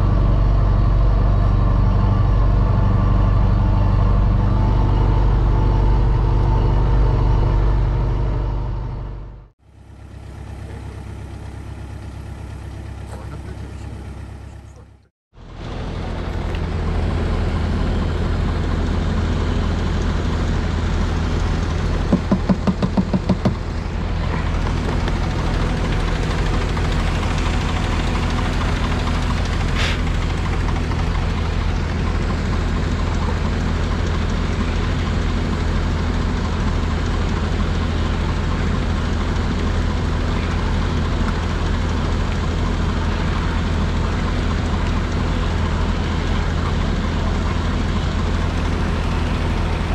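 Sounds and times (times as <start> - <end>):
tractor diesel engine running: 0.0 - 49.9
loud knocks: 22.1 - 23.6.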